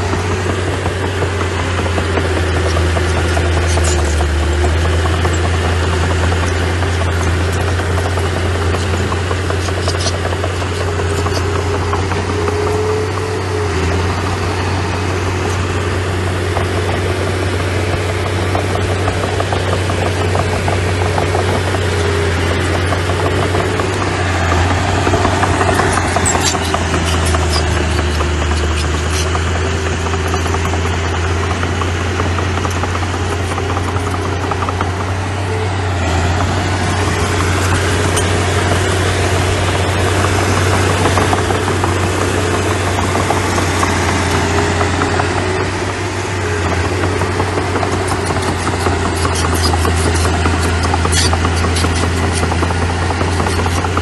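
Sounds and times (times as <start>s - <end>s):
diesel engine running: 0.0s - 54.0s
sharp clicks: 18.2s - 54.0s.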